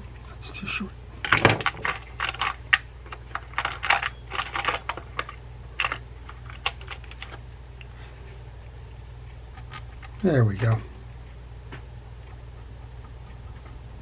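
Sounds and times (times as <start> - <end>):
steady low hum: 0.0 - 14.0
metal screws clicking in container: 3.3 - 7.4.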